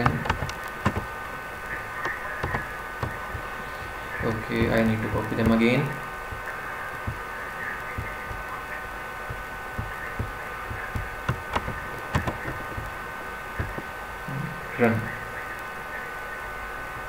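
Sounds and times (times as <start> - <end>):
keyboard and mouse clicks: 0.0 - 1.1, 2.0 - 5.6, 7.9 - 8.5, 9.3 - 12.9, 13.6 - 13.8
steady electrical whine: 0.0 - 17.0.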